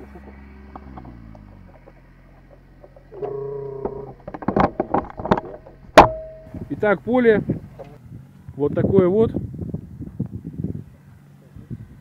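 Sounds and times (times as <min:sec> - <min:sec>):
faint low drone: 0:00.0 - 0:08.6.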